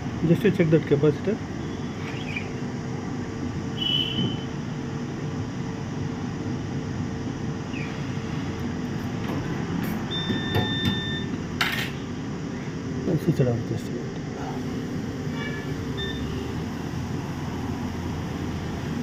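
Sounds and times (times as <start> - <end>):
short high beeps: 16.0 - 16.4.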